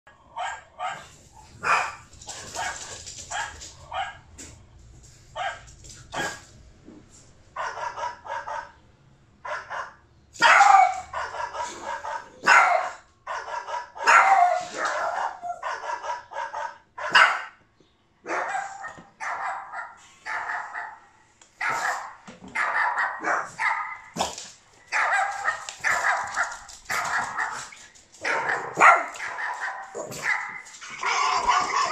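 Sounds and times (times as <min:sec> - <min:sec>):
dogs barking: 0:00.3 - 0:04.6, 0:05.3 - 0:06.5, 0:07.6 - 0:08.8, 0:09.4 - 0:31.9.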